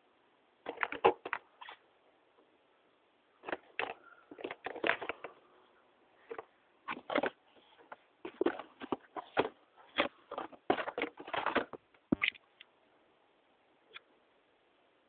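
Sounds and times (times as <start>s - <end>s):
packaging rustling and crinkling: 3.4s - 5.3s, 6.2s - 11.8s.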